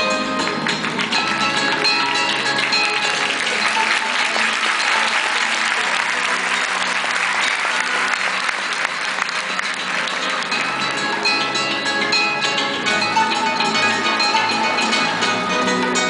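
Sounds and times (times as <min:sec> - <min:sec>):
flamenco guitar music: 0:00.0 - 0:16.0
large audience applauding: 0:00.4 - 0:12.1, 0:13.2 - 0:15.9.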